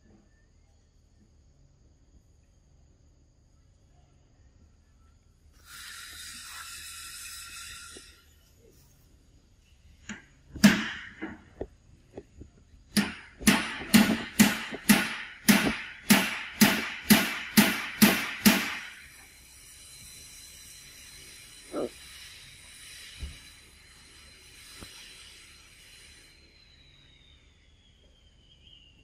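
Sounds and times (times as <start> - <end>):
sharp knocking: 12.9 - 18.9.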